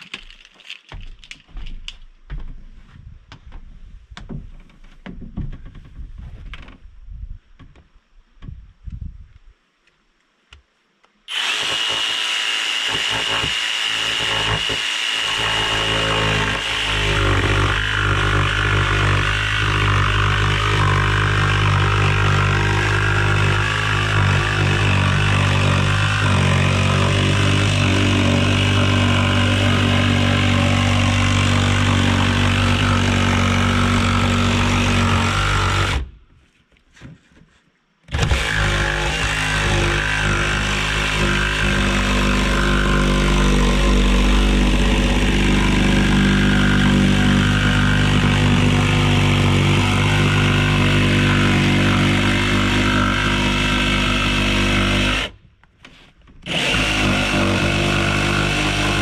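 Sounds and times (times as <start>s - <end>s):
jigsaw cutting wood: 11.3s - 36.1s, 38.1s - 55.4s, 56.4s - 59.0s.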